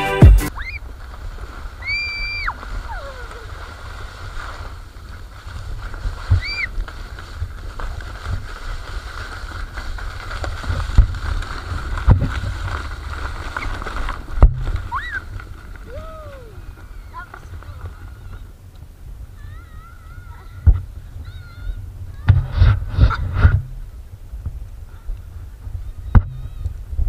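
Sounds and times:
plastic sledge sliding on snow: 0:00.0 - 0:27.0
child squealing: 0:00.5 - 0:00.8, 0:01.8 - 0:03.6, 0:06.3 - 0:06.7, 0:14.9 - 0:15.3, 0:15.9 - 0:17.5, 0:19.4 - 0:22.3, 0:25.9 - 0:26.8
sledge knocking over bumps: 0:14.1 - 0:14.9.

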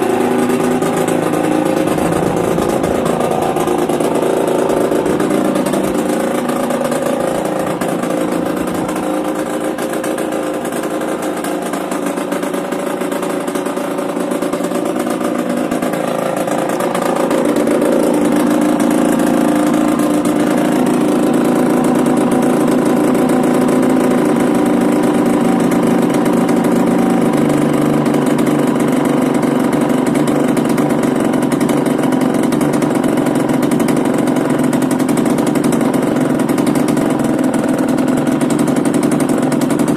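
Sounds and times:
two-stroke motorcycle engine running: 0:00.0 - 0:39.9.

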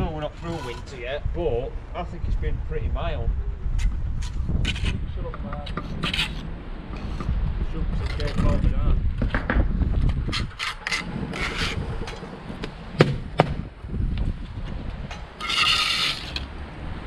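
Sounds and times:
trowel scraping mortar: 0:00.2 - 0:01.0, 0:05.7 - 0:06.4, 0:10.3 - 0:11.8, 0:15.4 - 0:16.5
sharp knocks: 0:13.0 - 0:13.7.

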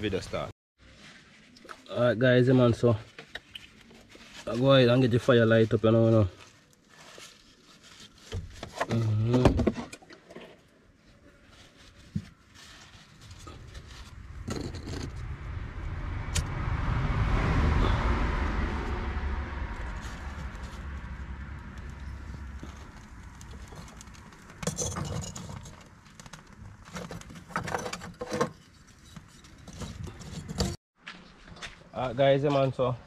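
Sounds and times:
vehicle passing by: 0:13.2 - 0:24.4.

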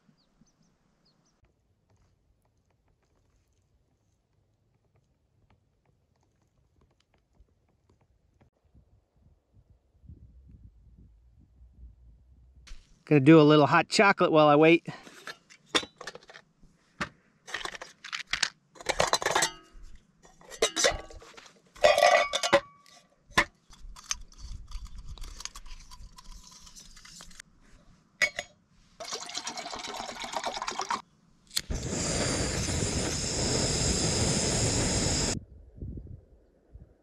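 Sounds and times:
metal mugs clinking and rattling: 0:17.5 - 0:27.4, 0:28.2 - 0:31.0
camp stove burning with hiss: 0:31.5 - 0:35.4.

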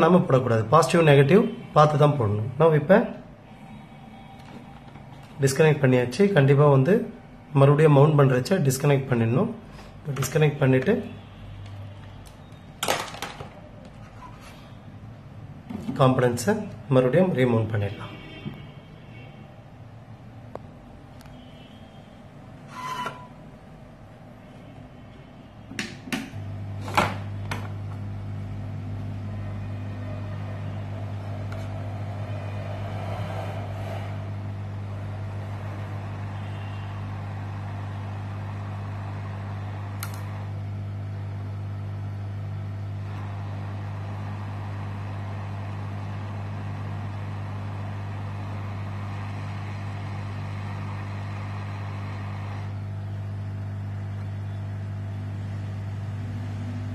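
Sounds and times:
hot air blower humming: 0:25.6 - 0:56.9.

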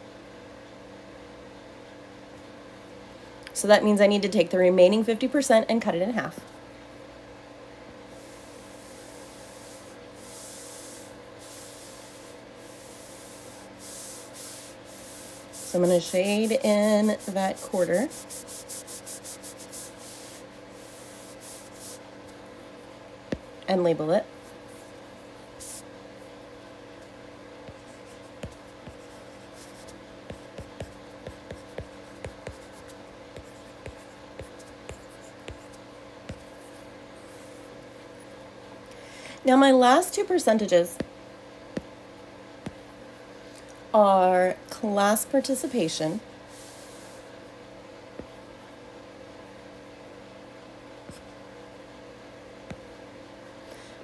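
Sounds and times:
faint steady hum: 0:00.0 - 0:54.0
stylus scratching on tablet screen: 0:08.2 - 0:22.0, 0:27.7 - 0:36.6.

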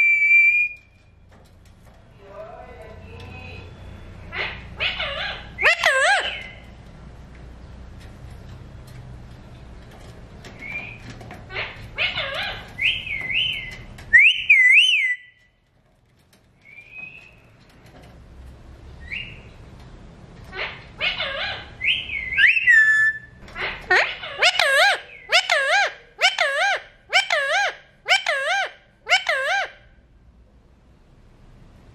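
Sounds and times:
parakeet whistled calls: 0:12.0 - 0:15.4, 0:21.0 - 0:23.3.

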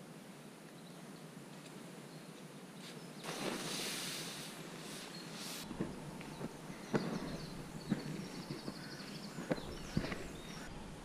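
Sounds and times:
low outdoor hiss: 0:00.0 - 0:11.0
loud rustling: 0:03.2 - 0:10.6
faint bird chirps: 0:04.9 - 0:10.7.

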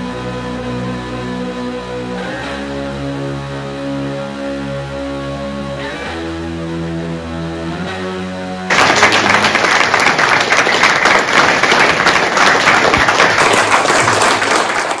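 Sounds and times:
audience applause: 0:08.7 - 0:15.0.

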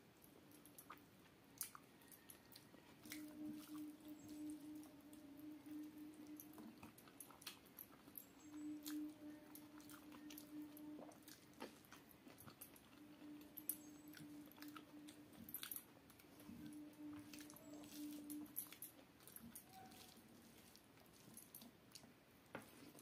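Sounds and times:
close chewing: 0:00.0 - 0:23.0
faint steady hum: 0:00.0 - 0:23.0
fingers squishing rice on plate: 0:16.2 - 0:23.0.

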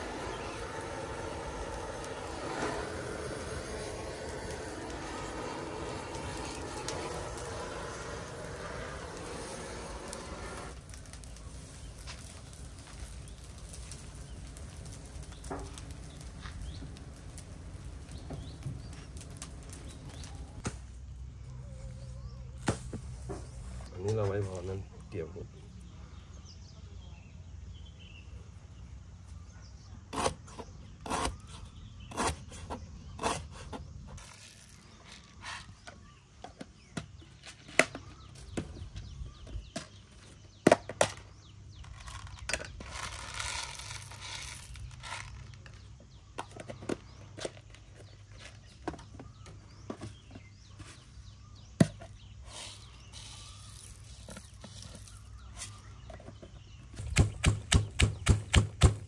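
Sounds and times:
rustling: 0:34.1 - 0:36.2, 0:41.8 - 0:46.0, 0:52.4 - 0:57.5.

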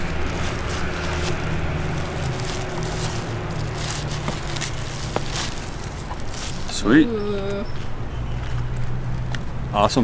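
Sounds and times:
cardboard and paper crinkling: 0:00.0 - 0:06.8.

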